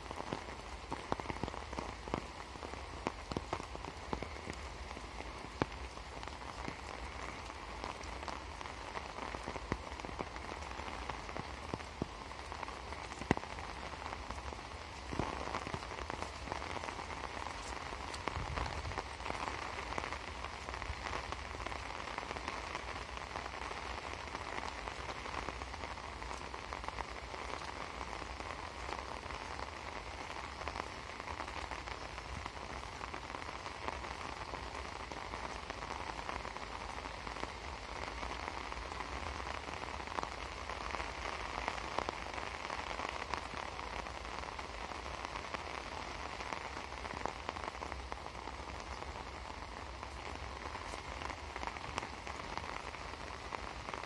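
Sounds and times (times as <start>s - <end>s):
heavy rain: 0.0s - 54.0s.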